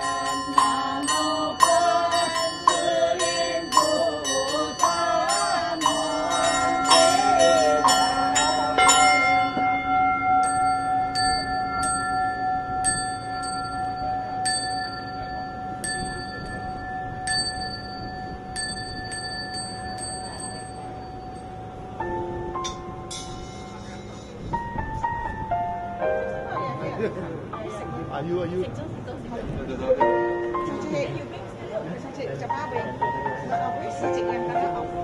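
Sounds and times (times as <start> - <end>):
metal bells struck quickly: 0.0 - 9.8, 10.4 - 21.6, 22.6 - 24.4
people chanting: 0.0 - 9.8
small high bell struck: 0.0 - 21.6, 22.6 - 24.4
bowl bell ringing: 0.0 - 25.3.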